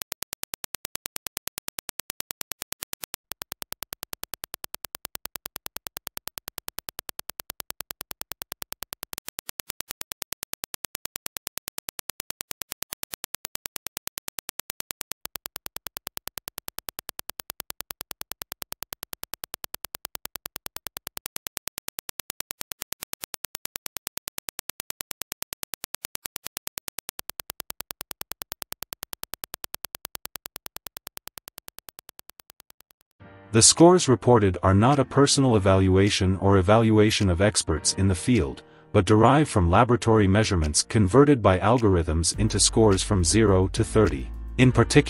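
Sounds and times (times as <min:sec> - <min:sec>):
sharp clicks: 0:00.0 - 0:33.2.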